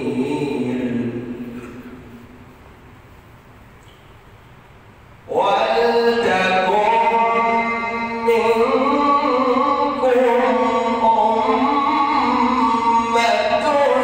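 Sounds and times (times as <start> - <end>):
man chanting melodically: 0.0 - 2.1, 5.3 - 14.0.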